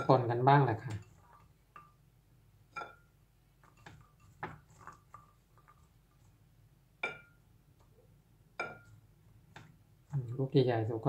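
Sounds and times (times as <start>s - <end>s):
ceramic bowl ringing: 2.7s - 3.2s, 7.0s - 7.4s, 8.6s - 9.0s.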